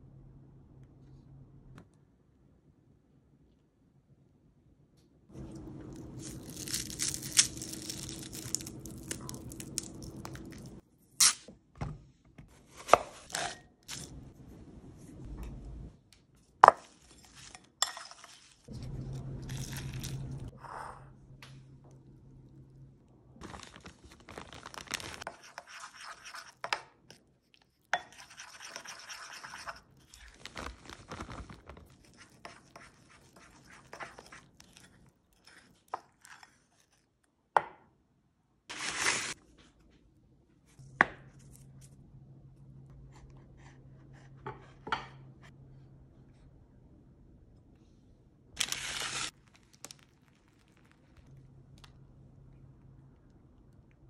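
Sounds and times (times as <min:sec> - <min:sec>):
low steady hum: 0:00.0 - 0:11.1, 0:11.8 - 0:25.3, 0:49.3 - 0:54.0
utensil stirring icing in bowl: 0:16.6 - 0:20.1, 0:25.2 - 0:37.1.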